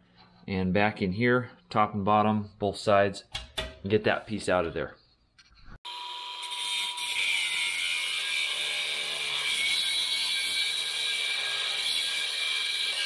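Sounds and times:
angle grinder grinding steel: 0:05.9 - 0:13.0.

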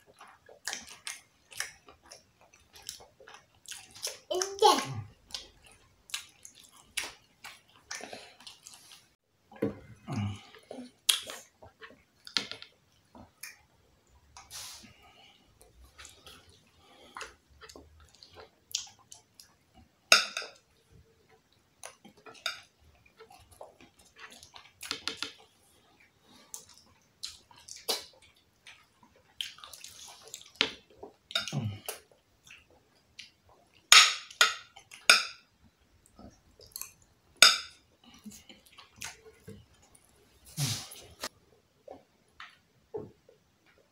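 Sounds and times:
wet chewing and lip smacking: 0:00.0 - 0:04.3, 0:05.2 - 0:09.2, 0:23.0 - 0:35.1, 0:38.0 - 0:40.1.

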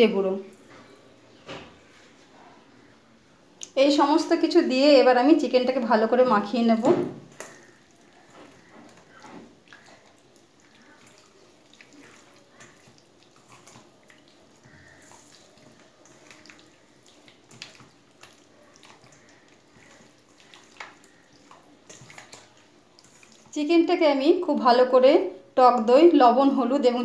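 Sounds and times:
wet squishing of chicken in marinade: 0:06.4 - 0:24.1.

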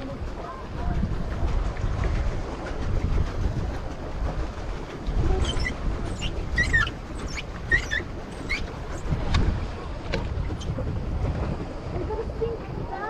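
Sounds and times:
wind buffeting microphone: 0:00.0 - 0:13.0
high sliding squeals: 0:05.4 - 0:09.1.

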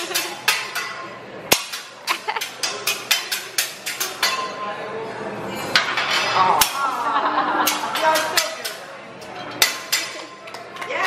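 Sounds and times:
metal spatulas clacking on griddle: 0:00.0 - 0:04.6, 0:07.6 - 0:11.0.

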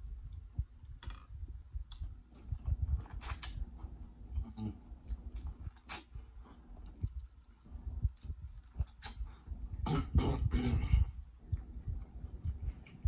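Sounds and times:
person chewing food: 0:01.8 - 0:09.8
wet mouth clicks and smacks: 0:08.1 - 0:09.2.

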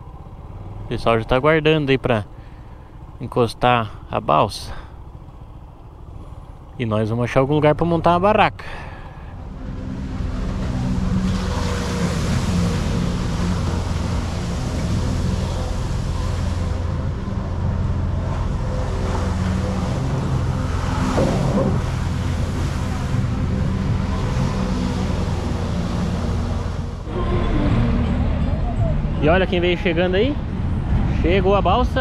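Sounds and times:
motorcycle engine running: 0:04.8 - 0:06.8, 0:08.8 - 0:29.2.

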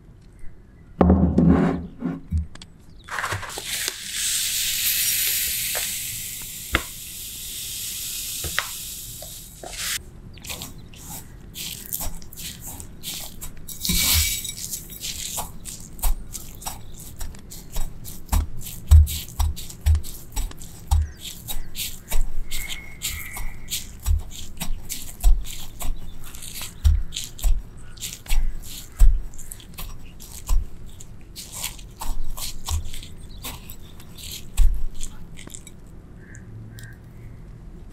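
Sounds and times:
bread crumbs poured into bowl: 0:03.1 - 0:06.4, 0:08.8 - 0:30.6
crackles of rolling in crumbs: 0:09.2 - 0:37.9.

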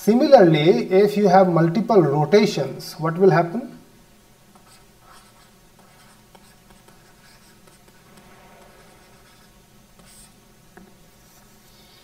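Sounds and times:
steady low hum: 0:03.4 - 0:12.0
stylus scratching on tablet: 0:04.5 - 0:10.4, 0:11.1 - 0:12.0.

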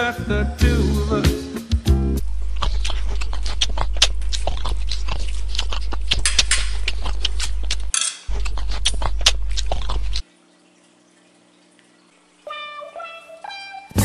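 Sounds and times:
steady low hum: 0:02.0 - 0:12.2
wet chewing and lip-smacking: 0:02.4 - 0:10.2
cutlery on a plate: 0:07.9 - 0:08.3.

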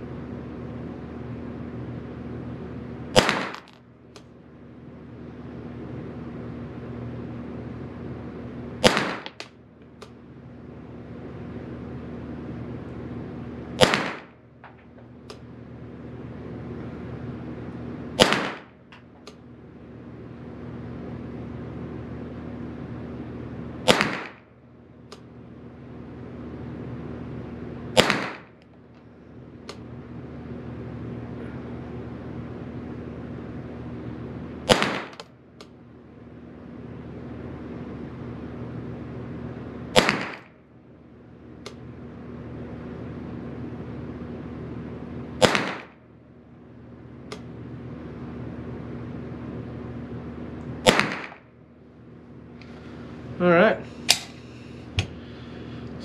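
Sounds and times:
steady low hum: 0:00.0 - 0:56.0
rifle shots ringing indoors: 0:03.1 - 0:03.8, 0:08.8 - 0:09.5, 0:13.8 - 0:14.8, 0:18.2 - 0:18.8, 0:23.8 - 0:24.4, 0:27.9 - 0:28.6, 0:34.6 - 0:35.3, 0:39.9 - 0:40.5, 0:45.4 - 0:46.0, 0:50.8 - 0:51.4.

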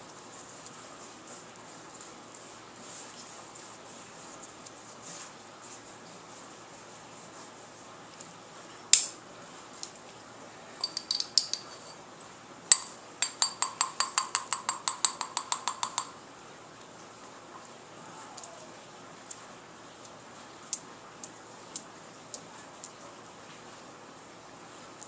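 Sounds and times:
paintbrush tapping container rim: 0:10.8 - 0:12.0, 0:12.7 - 0:16.2.

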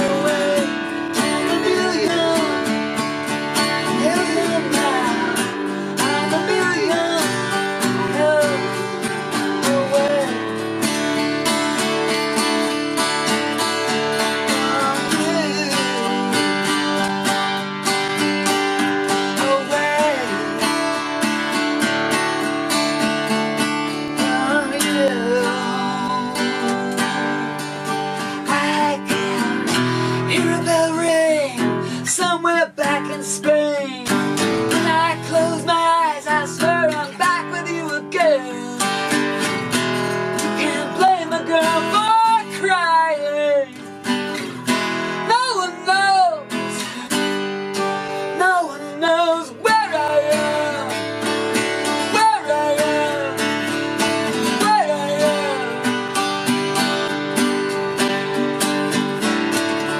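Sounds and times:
woman singing with vibrato: 0:00.0 - 0:02.7, 0:03.8 - 0:09.0, 0:14.5 - 0:16.4, 0:24.2 - 0:27.6, 0:34.8 - 0:38.8, 0:40.6 - 0:43.8, 0:45.2 - 0:47.0, 0:48.4 - 0:51.0, 0:52.0 - 0:53.4, 0:54.4 - 0:55.8
acoustic guitars playing: 0:00.0 - 0:59.9.

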